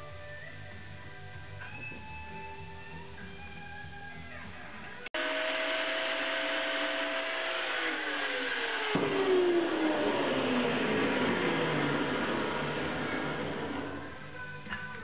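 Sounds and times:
power tool motor whining: 5.2 - 14.2.

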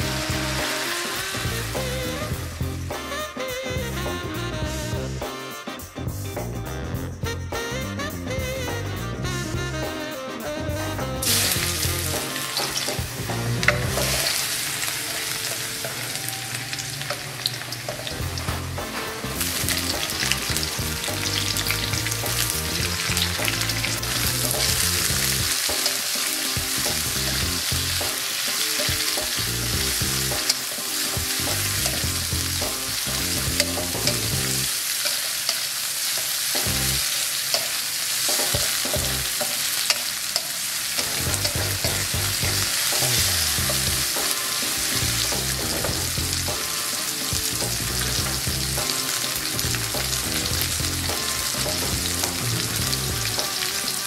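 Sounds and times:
vegetables sizzling in hot oil: 0.0 - 3.5, 11.2 - 54.0
wooden spatula scraping wok: 11.2 - 54.0
spatula clicking against wok: 37.5 - 42.0.

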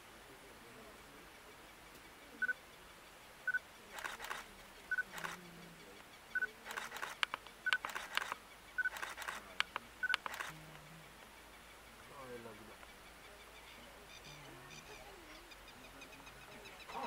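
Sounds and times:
camera shutters clicking: 4.0 - 5.4, 6.7 - 10.6.

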